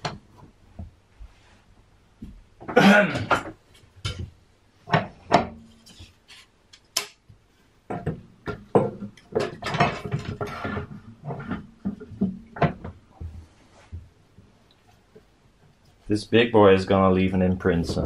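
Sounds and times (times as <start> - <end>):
wood and metal clamps clacking: 7.9 - 13.0.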